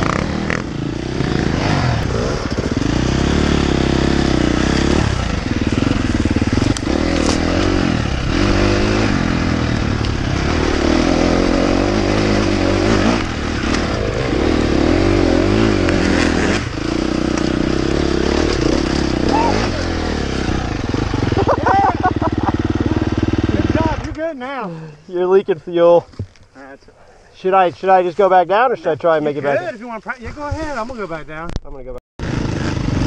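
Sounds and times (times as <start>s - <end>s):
dirt bike engine revving: 0.0s - 24.2s, 32.2s - 33.0s.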